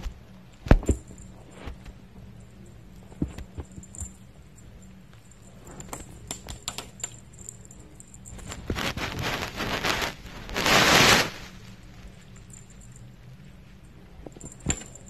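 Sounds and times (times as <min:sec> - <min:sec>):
faint tinkles: 0:01.0 - 0:08.7, 0:11.8 - 0:15.0
rustling on fleece: 0:08.3 - 0:12.3.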